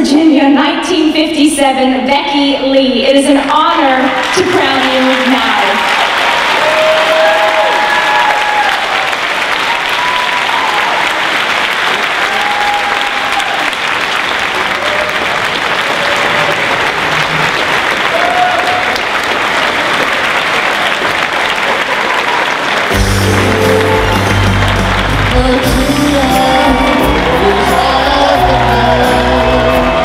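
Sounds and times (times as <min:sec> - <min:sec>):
voices rising above clapping: 0:04.1 - 0:25.4
audience applauding: 0:04.1 - 0:30.0.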